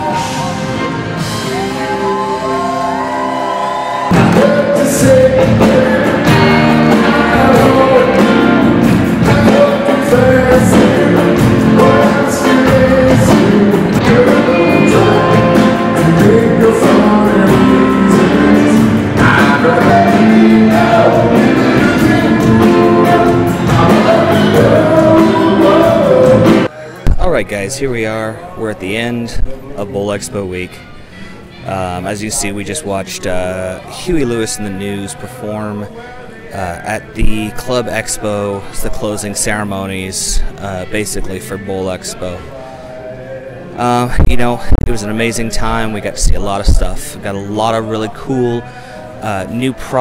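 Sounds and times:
live rock band playing: 0:00.0 - 0:26.7
harmonica playing: 0:00.0 - 0:26.8
man singing lead vocal: 0:04.1 - 0:28.1, 0:31.6 - 0:50.0.

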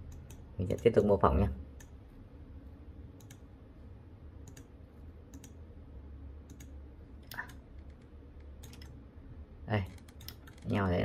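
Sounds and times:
computer mouse clicks: 0:00.0 - 0:01.0, 0:01.8 - 0:02.0, 0:03.2 - 0:03.5, 0:04.4 - 0:05.6, 0:06.4 - 0:09.0, 0:09.8 - 0:10.8
low steady hum: 0:00.0 - 0:11.0.

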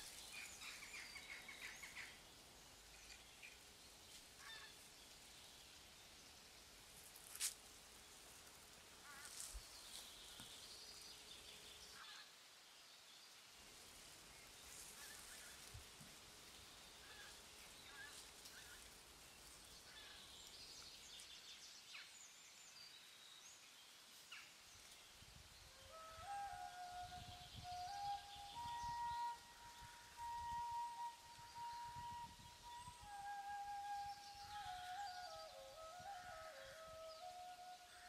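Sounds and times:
faint bird calls: 0:04.2 - 0:05.2, 0:09.0 - 0:12.4, 0:16.6 - 0:21.3, 0:25.6 - 0:38.0.

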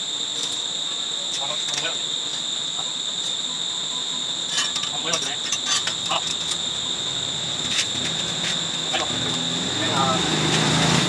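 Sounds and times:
high-pitched chirring drone: 0:00.0 - 0:11.0
metal tines clinking on concrete: 0:04.5 - 0:06.9.

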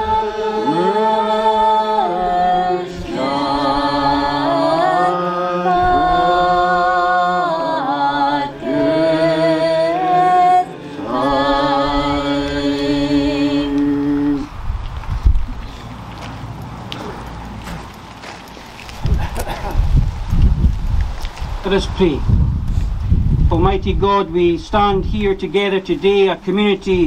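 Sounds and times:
congregation singing unaccompanied: 0:00.0 - 0:14.6.

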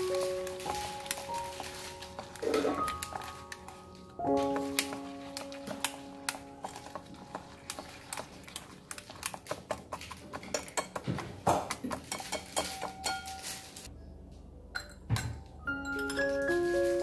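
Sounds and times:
whisk scraping a ceramic bowl: 0:04.4 - 0:13.6.

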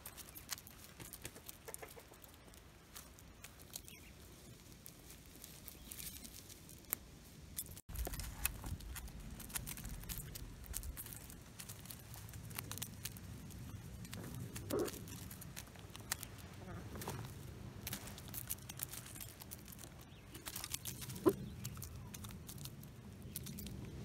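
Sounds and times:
hens pecking clicks: 0:00.0 - 0:04.9, 0:07.6 - 0:24.0
hens clucking: 0:01.2 - 0:02.2.

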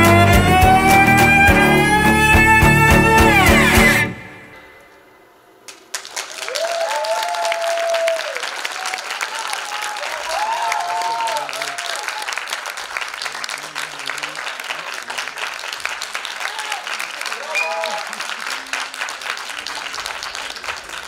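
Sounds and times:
people cheering: 0:00.0 - 0:04.0, 0:06.1 - 0:21.0
music: 0:00.0 - 0:04.6
audience applause: 0:05.7 - 0:21.0.

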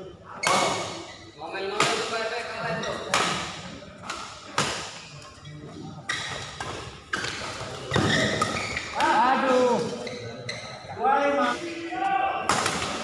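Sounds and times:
rackets hitting shuttlecock: 0:12.5 - 0:13.0.

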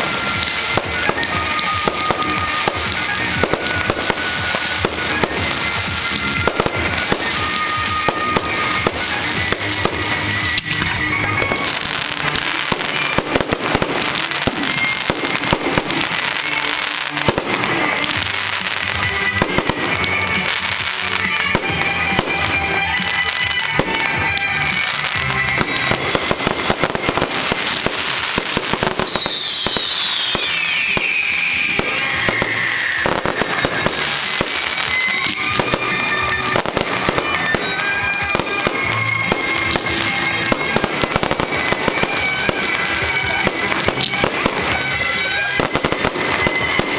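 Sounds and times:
fireworks cracking and banging: 0:00.0 - 0:46.9
whistle falling in pitch: 0:28.9 - 0:33.3.

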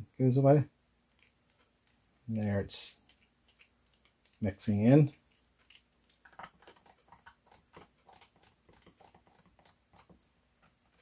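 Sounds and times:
stir stick scraping plastic cup: 0:02.9 - 0:11.0.

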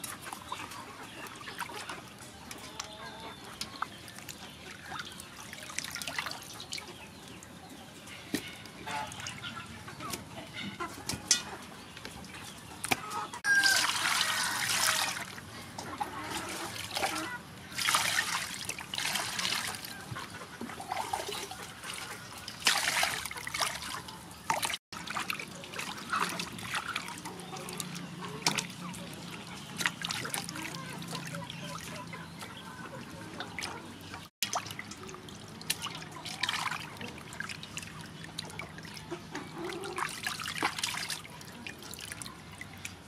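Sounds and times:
water splashing in metal bowl: 0:12.8 - 0:15.4, 0:16.2 - 0:20.0, 0:20.8 - 0:32.0, 0:34.4 - 0:43.0.

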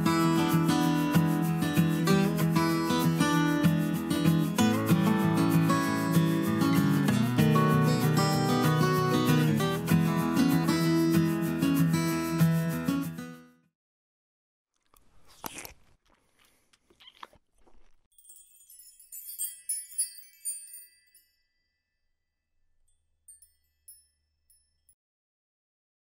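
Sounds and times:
acoustic guitar music: 0:00.0 - 0:13.6
high twinkling chime tones: 0:18.1 - 0:22.1, 0:22.9 - 0:25.0.

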